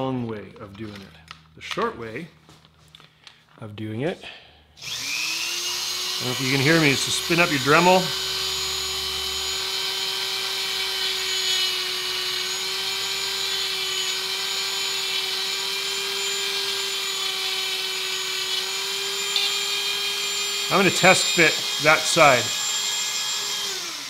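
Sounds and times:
rotary tool grinding plastic: 0:04.8 - 0:24.0.

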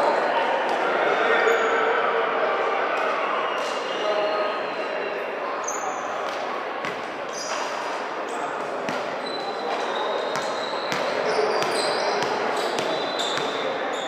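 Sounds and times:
many voices chattering: 0:00.0 - 0:14.0
volleyball being hit and bounced: 0:06.3 - 0:07.1, 0:08.8 - 0:09.2, 0:10.3 - 0:13.6.

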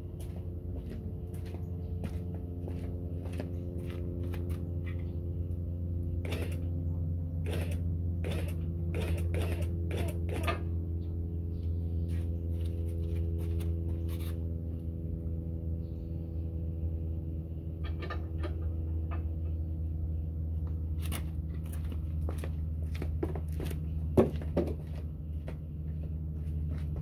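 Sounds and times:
machine hum: 0:00.0 - 0:27.0.

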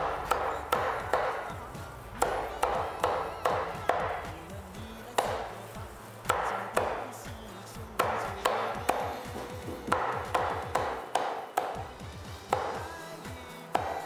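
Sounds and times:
cleaver chopping on wooden block: 0:00.0 - 0:01.6, 0:02.2 - 0:04.3, 0:05.2 - 0:05.5, 0:06.3 - 0:07.1, 0:08.0 - 0:11.9, 0:12.5 - 0:13.0, 0:13.7 - 0:14.0.

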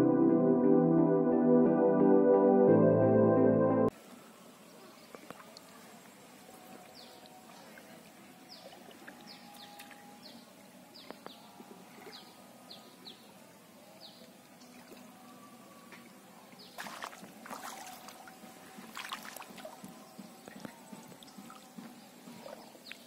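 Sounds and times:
person wading through water: 0:16.7 - 0:22.8.

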